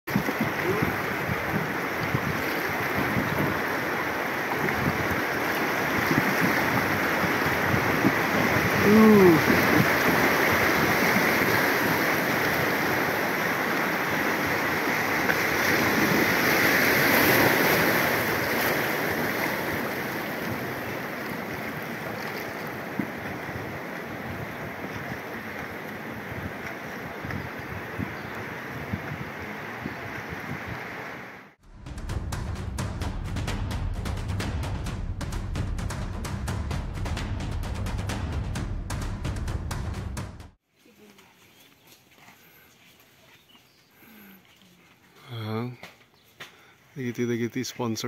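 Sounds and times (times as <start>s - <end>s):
river rapids rushing: 0.1s - 31.6s
person calling out: 8.8s - 9.6s.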